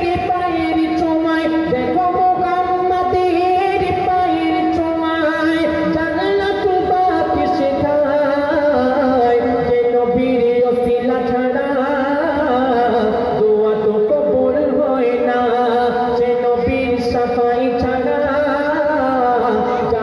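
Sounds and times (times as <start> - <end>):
man singing devotional song: 0.0 - 20.0.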